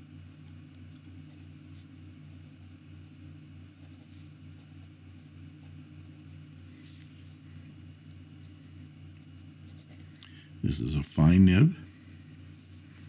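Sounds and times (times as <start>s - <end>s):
pen scratching on paper: 0.3s - 6.4s.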